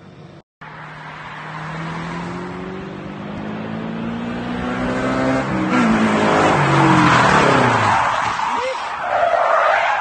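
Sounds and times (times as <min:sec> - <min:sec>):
sports car engine accelerating: 0:00.6 - 0:07.8.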